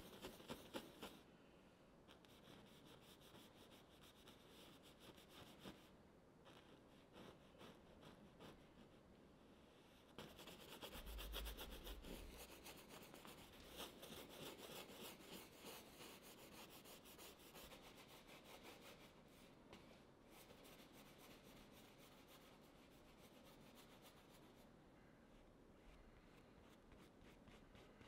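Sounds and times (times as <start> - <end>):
brush scrubbing on canvas: 10.2 - 19.5.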